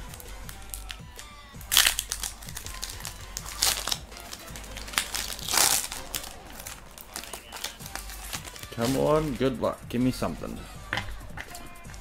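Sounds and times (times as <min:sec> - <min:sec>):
foil wrapper tearing and crinkling: 0:00.0 - 0:09.4.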